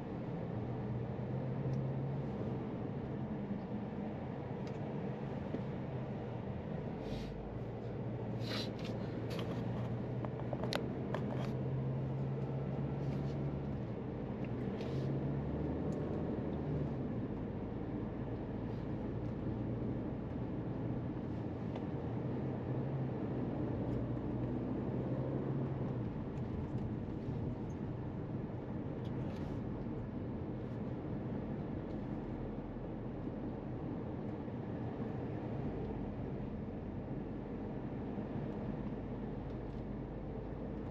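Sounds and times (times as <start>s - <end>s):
car engine hum: 0.0s - 40.9s
road noise: 0.0s - 40.9s.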